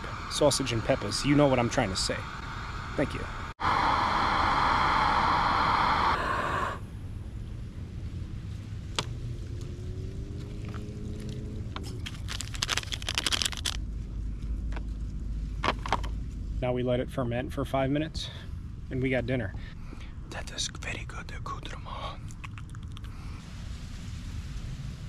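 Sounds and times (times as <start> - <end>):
gas burner hissing: 0.0 - 7.3
distant traffic rumble: 0.0 - 25.0
scraping and crackling handling: 10.6 - 13.9.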